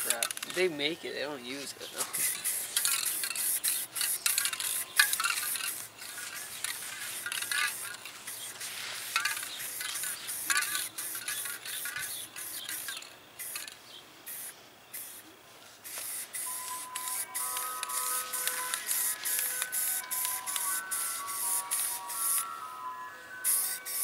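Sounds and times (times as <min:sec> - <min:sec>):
spray paint can hissing: 0:02.0 - 0:22.6, 0:23.4 - 0:24.0
background music with steady tones: 0:16.4 - 0:24.0.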